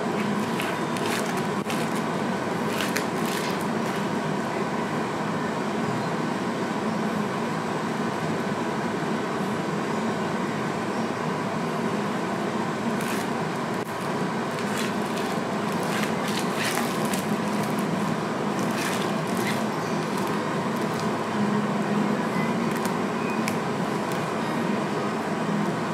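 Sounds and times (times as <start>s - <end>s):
indoor background noise: 0.0s - 25.9s.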